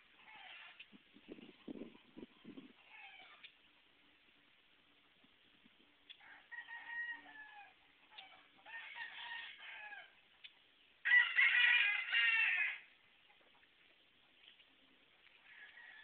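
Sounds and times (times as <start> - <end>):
rooster crowing: 6.2 - 10.1, 11.0 - 12.9, 15.4 - 16.0.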